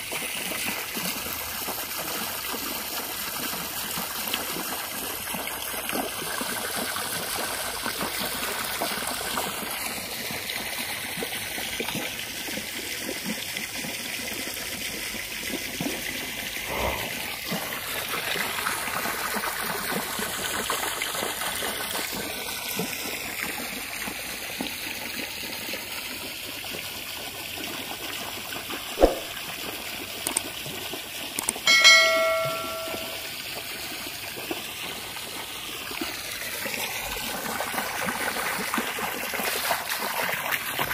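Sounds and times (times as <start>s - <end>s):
water pouring into pool: 0.0s - 40.9s
short bell chime: 31.7s - 33.3s.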